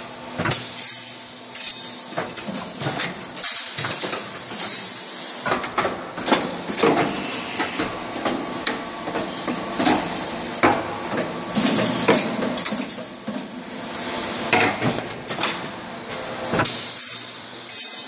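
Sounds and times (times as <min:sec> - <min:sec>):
steady machine hum: 0:00.0 - 0:18.0
pneumatic grippers clacking: 0:00.4 - 0:13.5, 0:14.5 - 0:18.0.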